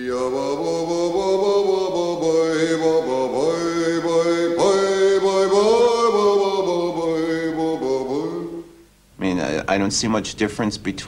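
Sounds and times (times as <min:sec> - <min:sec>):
man chanting: 0:00.0 - 0:08.6.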